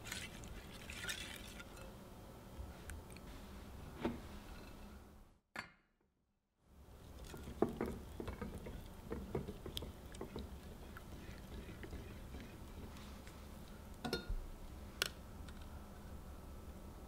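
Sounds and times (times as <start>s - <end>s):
liquid sloshing: 0.0s - 1.9s, 7.1s - 13.5s
whisk clicking and scraping glass: 0.0s - 1.9s, 7.2s - 13.4s.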